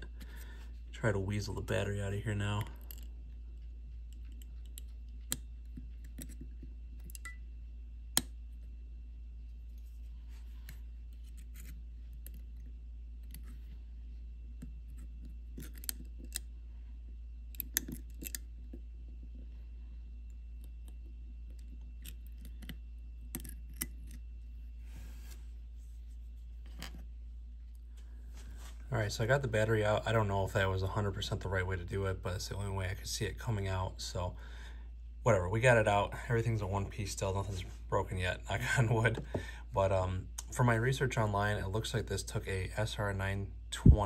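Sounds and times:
steady low hum: 0.0s - 44.0s
metal tweezers clicking and scraping: 11.2s - 12.4s, 15.6s - 16.5s.

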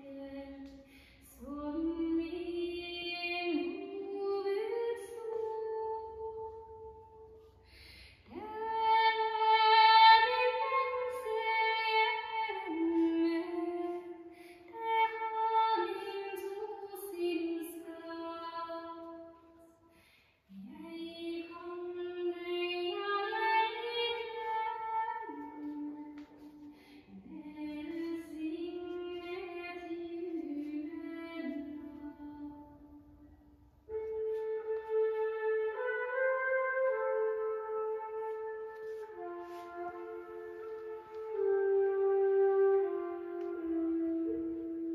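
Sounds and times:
slow melody through loudspeakers: 0.0s - 19.8s, 20.5s - 44.9s.

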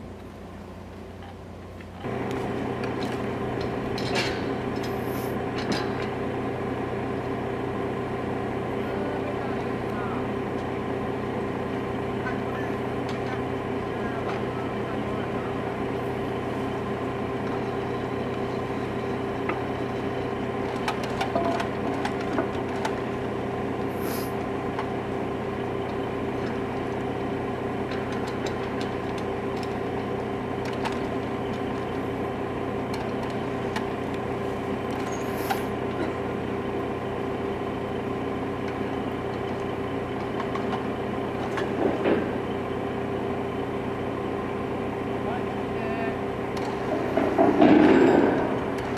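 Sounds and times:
engine droning: 0.0s - 48.9s
metallic clanks and knocks: 2.8s - 6.1s, 20.6s - 23.0s, 46.6s - 48.9s.

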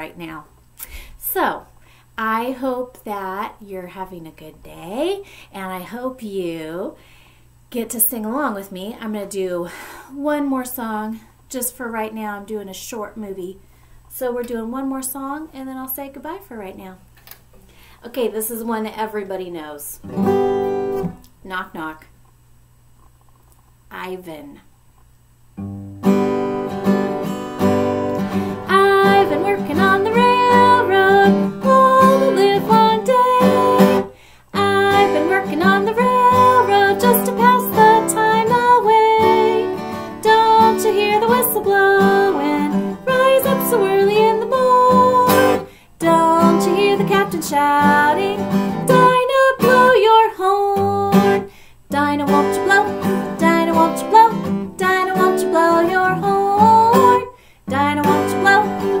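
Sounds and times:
acoustic guitar strumming: 20.0s - 21.2s, 25.6s - 51.4s, 52.0s - 59.0s
woman singing: 28.5s - 59.0s.

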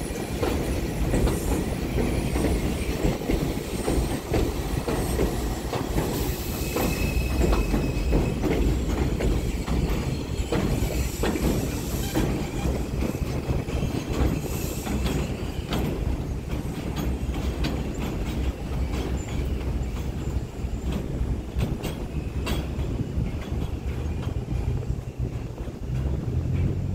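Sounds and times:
subway train rumbling: 0.0s - 26.9s
wheels clicking over rail joints: 0.1s - 26.9s
high wheel squeal: 5.0s - 15.7s.

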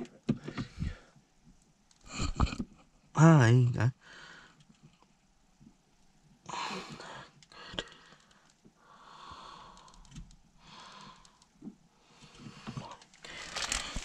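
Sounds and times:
person breathing heavily: 0.4s - 1.2s, 6.5s - 11.4s, 12.0s - 14.0s.

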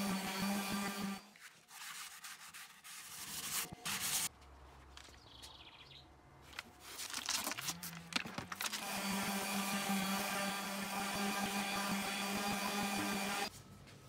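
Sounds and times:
orbital sander: 0.0s - 1.3s, 8.7s - 13.5s
scratchy rubbing: 1.3s - 4.3s
bird chirp: 5.1s - 6.1s.

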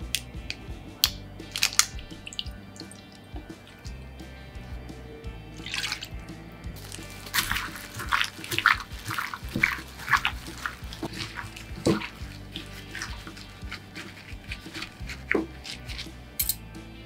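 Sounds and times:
background music: 0.0s - 17.0s
wet squelching of kneaded meat: 1.5s - 3.9s, 5.6s - 16.3s
plastic crinkling: 6.8s - 16.1s.

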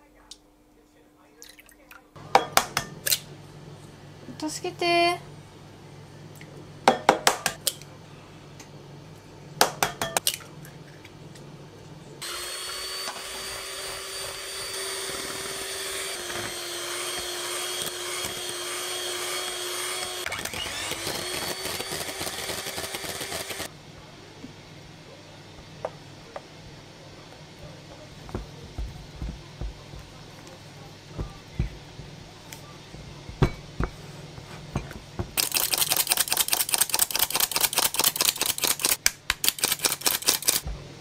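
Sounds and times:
electric hand mixer whining: 12.2s - 23.7s.

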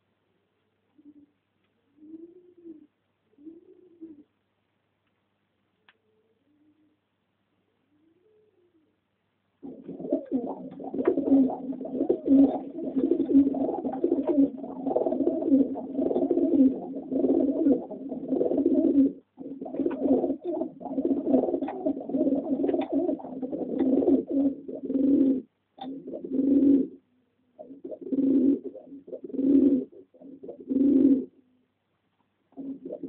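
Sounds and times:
pigeons cooing: 1.9s - 4.3s, 9.6s - 27.0s, 27.6s - 31.4s, 32.5s - 33.0s.

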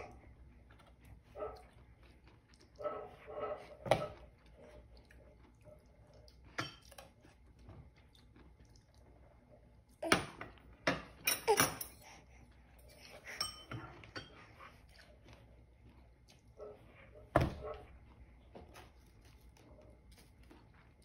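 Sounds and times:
cutlery clinking against dishes: 6.6s - 7.0s, 10.9s - 12.1s, 12.9s - 14.4s.

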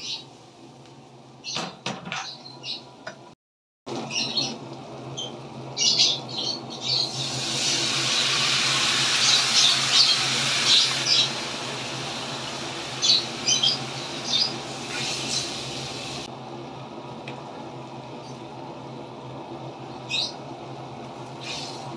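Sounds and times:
aromatics sizzling in a wok: 4.0s - 21.9s
sauce hissing and crackling: 6.9s - 16.3s, 21.2s - 21.9s
water spitting in hot pan: 7.1s - 16.3s.

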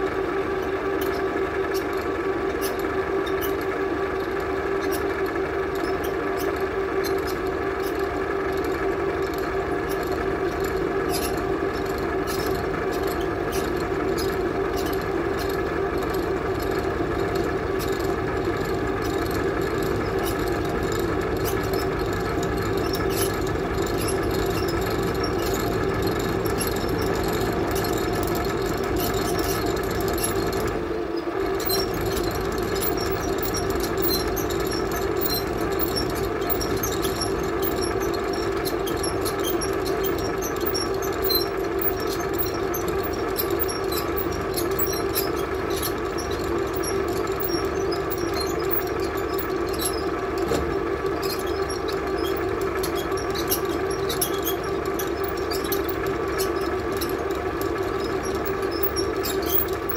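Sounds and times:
milling machine cutting steel: 31.5s - 59.9s.

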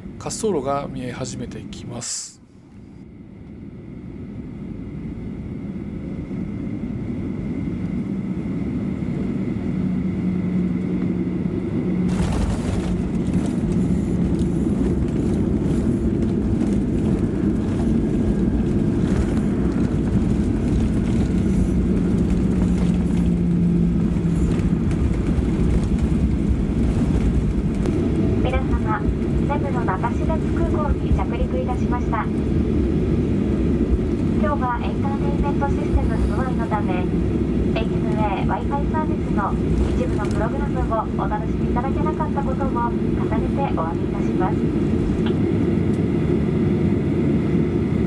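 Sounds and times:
jet airliner landing: 0.0s - 48.0s.

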